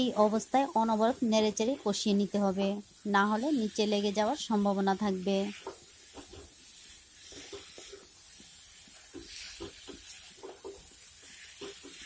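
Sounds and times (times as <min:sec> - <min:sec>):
faint sizzle: 0:00.0 - 0:12.0
wooden spatula scraping pan: 0:03.3 - 0:12.0.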